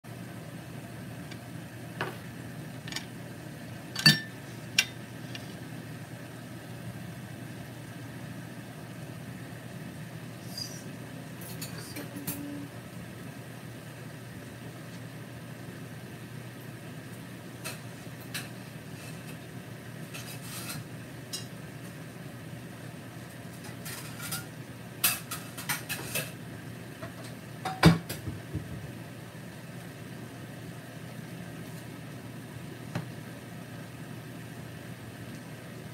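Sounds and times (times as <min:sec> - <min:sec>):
steady low hum: 0:00.1 - 0:27.6.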